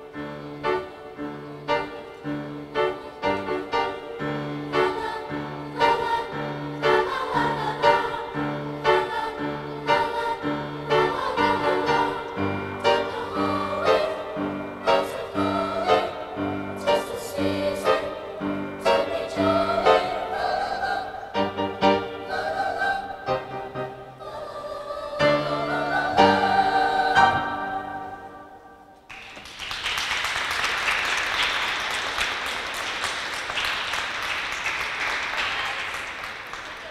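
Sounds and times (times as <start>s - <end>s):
piano accompaniment: 0.0s - 24.4s, 25.1s - 29.1s
choir singing: 0.0s - 29.0s
audience applauding: 29.1s - 36.9s.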